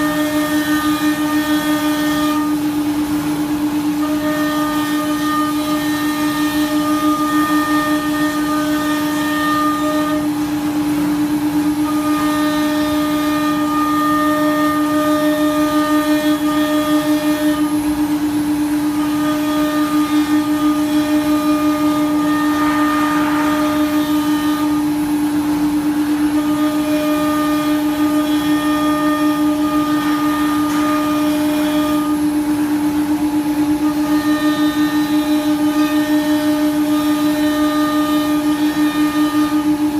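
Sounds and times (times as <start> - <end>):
wood router spindle whine: 0.0 - 39.9
router bit cutting wood: 4.0 - 10.2, 18.9 - 24.9.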